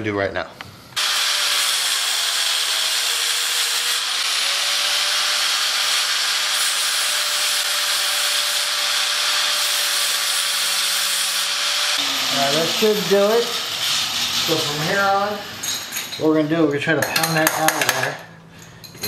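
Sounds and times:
angle grinder grinding metal: 1.0s - 16.2s.

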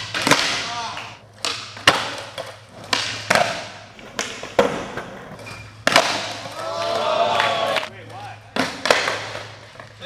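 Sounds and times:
wheels rolling on concrete: 1.2s - 10.0s
skateboard tail pops: 1.4s - 6.6s, 8.6s - 9.4s
skateboard landing snap: 1.5s - 7.5s, 8.6s - 9.5s.

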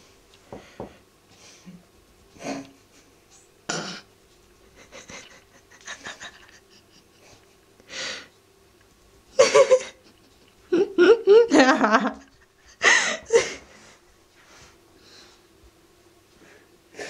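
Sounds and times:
person laughing breathily: 4.6s - 8.2s, 9.4s - 14.0s.

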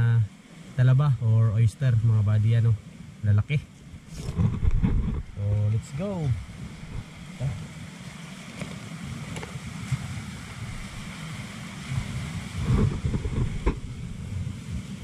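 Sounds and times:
sea waves: 0.0s - 15.0s
wind buffeting microphone: 3.9s - 15.0s.

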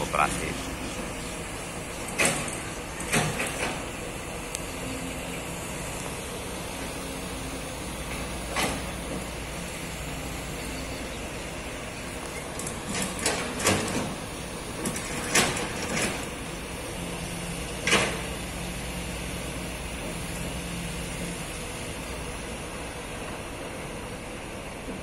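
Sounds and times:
distant traffic hum: 0.0s - 25.0s
faint low engine drone: 0.0s - 25.0s
sharp knocks or clanks: 2.1s - 3.9s, 12.6s - 14.2s.

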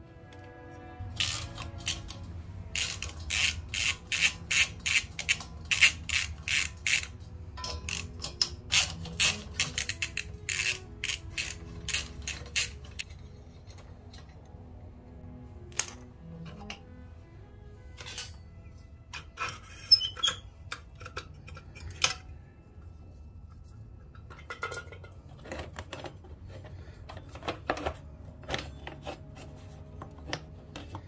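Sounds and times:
faint background music: 0.0s - 31.0s
hand ratchet clicking: 1.2s - 13.1s.

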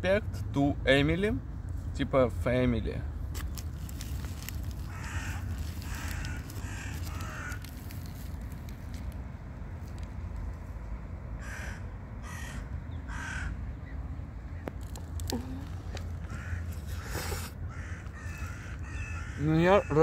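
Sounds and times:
crow cawing: 4.8s - 8.0s, 11.4s - 13.6s, 16.0s - 20.0s.

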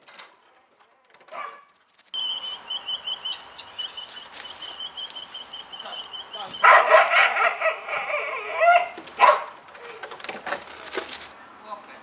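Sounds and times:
outdoor background noise: 0.0s - 12.0s
dog yipping: 1.3s - 1.7s, 6.4s - 9.6s
bird chirping rapidly: 2.1s - 7.0s.

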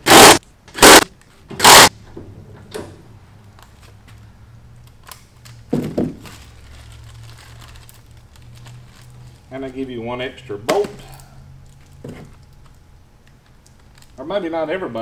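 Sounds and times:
impact driver hammering: 0.0s - 1.9s.

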